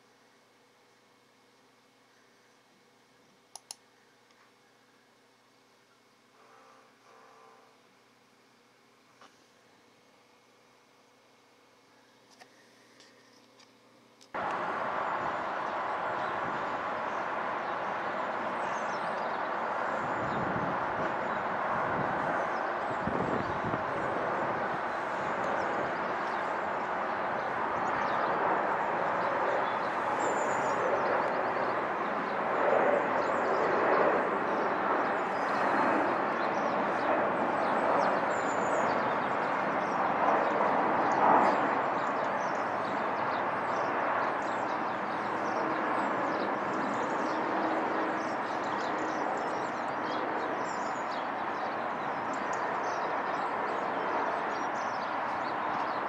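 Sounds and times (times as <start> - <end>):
jet airliner engines droning: 14.4 - 56.0.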